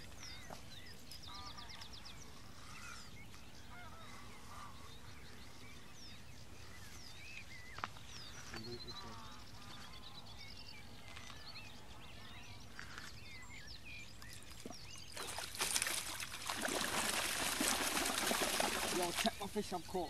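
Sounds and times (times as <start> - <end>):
faint birdsong: 0.0 - 20.0
fish splashing in water: 14.4 - 19.4.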